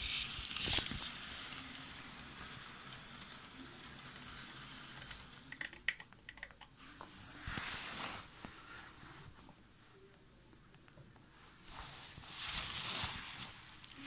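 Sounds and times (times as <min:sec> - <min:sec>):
model train hissing rush: 0:01.0 - 0:05.4
sharp clicks and knocks: 0:05.0 - 0:06.8.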